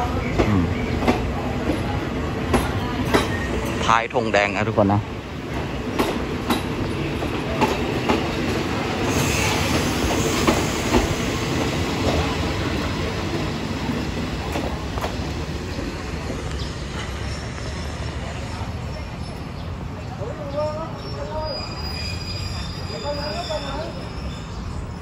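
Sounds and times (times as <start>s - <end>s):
train wheels clattering over rail joints: 5.5s - 15.8s.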